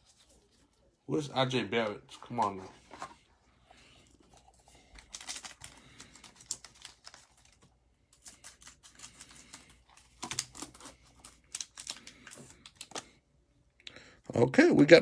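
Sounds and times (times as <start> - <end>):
wrapper crinkling: 4.3 - 13.1.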